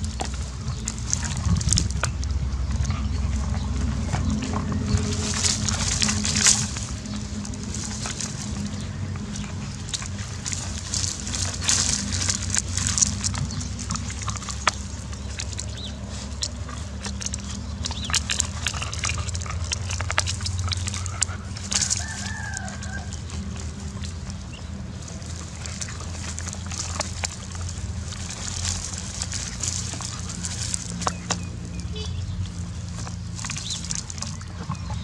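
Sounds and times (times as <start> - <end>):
puppy gnawing crunching: 0.0 - 35.0
steady low hum: 0.0 - 35.0.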